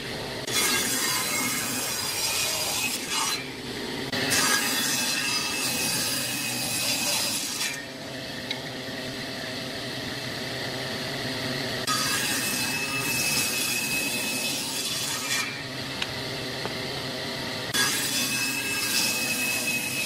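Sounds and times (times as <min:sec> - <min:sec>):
table saw ripping wood: 0:00.4 - 0:03.5, 0:04.1 - 0:07.9, 0:11.8 - 0:15.6, 0:17.7 - 0:20.0.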